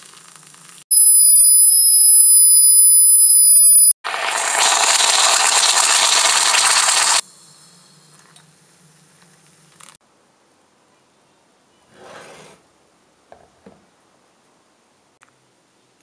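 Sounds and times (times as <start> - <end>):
high steady tone: 0.9 - 4.0
coffee being poured: 4.1 - 7.2
moka pot hissing and sputtering: 4.1 - 7.3.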